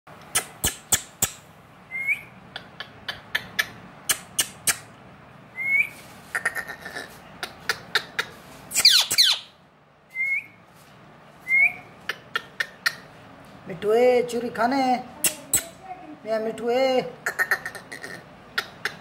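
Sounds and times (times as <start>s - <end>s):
parakeet squawk: 6.3s - 9.5s
parakeet chirping: 6.4s - 9.6s.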